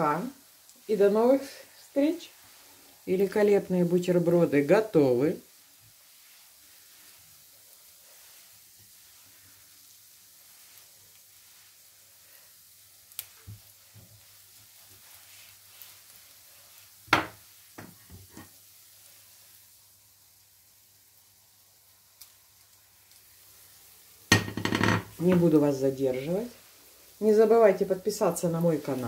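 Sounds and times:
bread frying in oil: 0.0 - 29.0
fork knocking against pan: 24.3 - 24.8.

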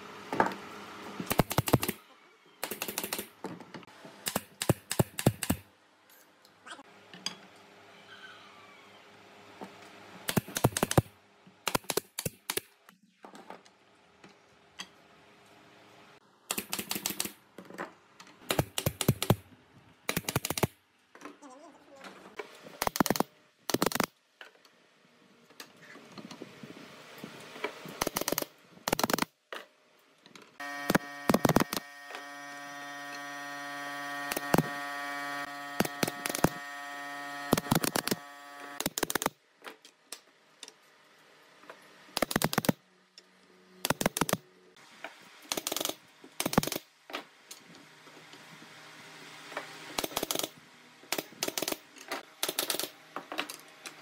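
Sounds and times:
nail gun shots: 1.3 - 2.0, 2.6 - 3.3, 4.2 - 5.7, 10.3 - 12.7, 16.5 - 17.4, 18.5 - 19.4, 20.1 - 20.8, 22.8 - 24.1, 28.0 - 29.3, 30.8 - 31.9, 34.3 - 34.7, 35.8 - 36.6, 37.4 - 38.2, 38.8 - 39.4, 42.2 - 42.8, 43.8 - 44.4, 45.5 - 46.9, 50.0 - 53.0
machine hum: 30.6 - 38.9.

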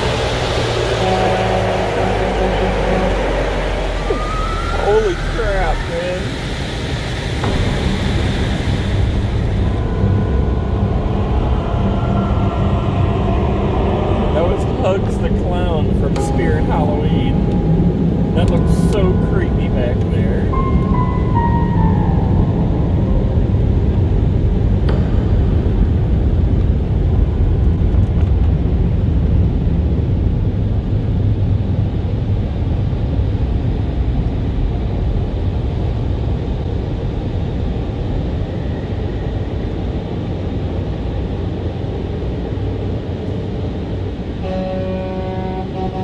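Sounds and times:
car wash machinery rushing: 0.0 - 20.6.

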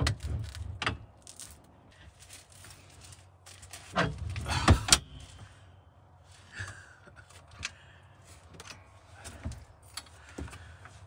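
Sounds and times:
metal clunks and rattles: 3.8 - 5.2.

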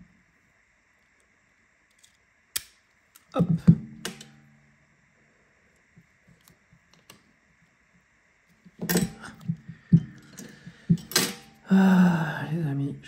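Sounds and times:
clicks of tools and phone parts: 1.9 - 3.3, 4.0 - 4.4.

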